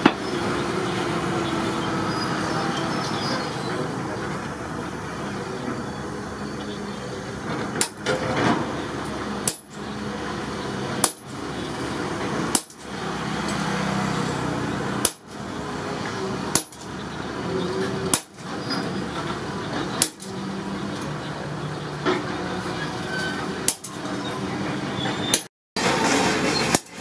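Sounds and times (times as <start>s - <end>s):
steady background noise: 0.0s - 27.0s
hammer striking metal: 7.7s - 10.1s, 10.9s - 11.5s, 12.2s - 13.9s, 14.8s - 17.0s, 18.0s - 18.5s, 19.3s - 21.2s, 23.2s - 24.2s, 25.3s - 27.0s.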